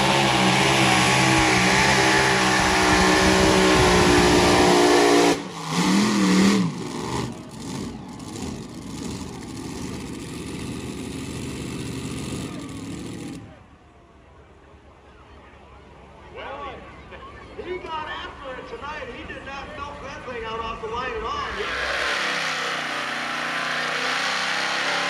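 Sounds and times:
engine revving: 0.0 - 13.5, 21.5 - 25.0
pulling tractor engines roaring: 0.0 - 25.0
low mixed background noise: 13.4 - 21.4.

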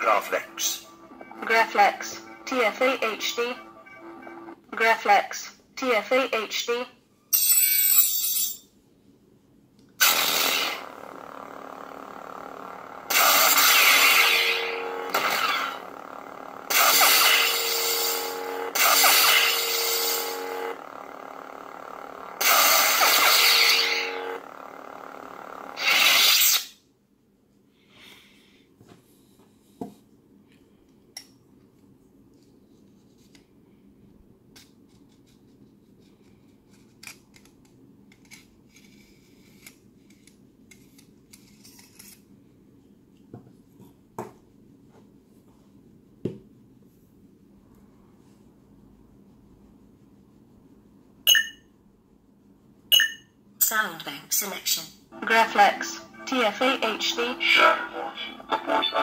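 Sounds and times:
lightsaber electric hum: 0.0 - 4.6, 10.0 - 26.8, 54.7 - 59.0
loud sound effect bursts: 10.0 - 24.5
lightsaber blade retracting: 25.8 - 26.8.

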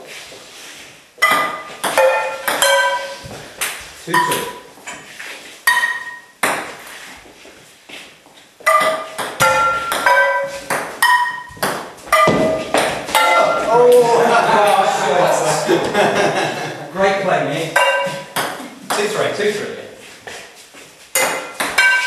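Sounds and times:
ball struck by metal pans: 1.2 - 4.7, 5.7 - 6.8, 8.6 - 14.0, 17.7 - 19.2, 21.1 - 22.0
ball bouncing on table: 8.7 - 13.7, 17.8 - 19.1.

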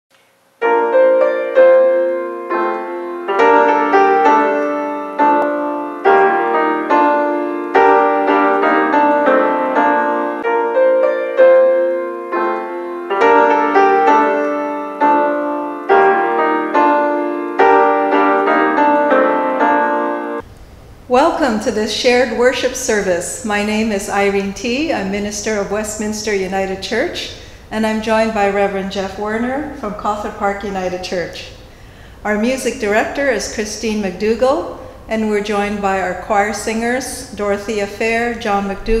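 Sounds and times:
gentle solo piano melody: 0.6 - 20.4.

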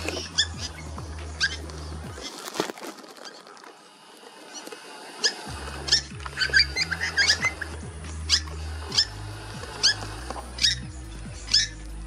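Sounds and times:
bird alarm calls: 0.0 - 2.4, 5.2 - 12.0.

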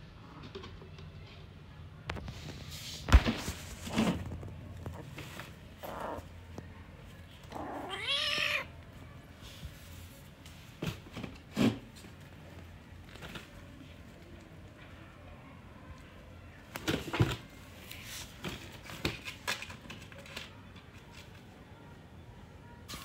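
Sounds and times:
kitten meowing: 7.5 - 8.7.

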